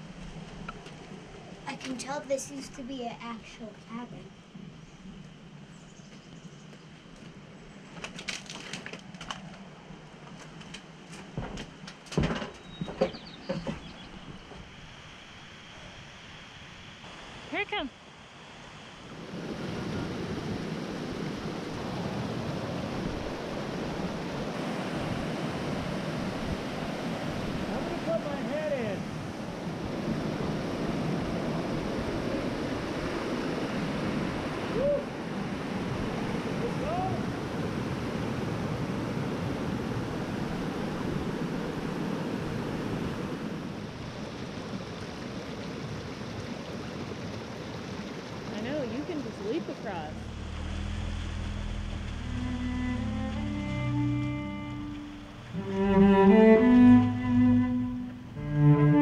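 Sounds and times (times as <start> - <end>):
creek rushing over rocks: 18.6 - 57.6.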